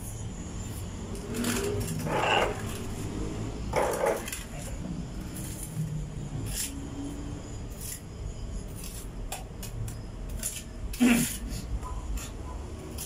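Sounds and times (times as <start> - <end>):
trowel scraping and tapping cement: 3.7 - 4.7, 8.7 - 13.0.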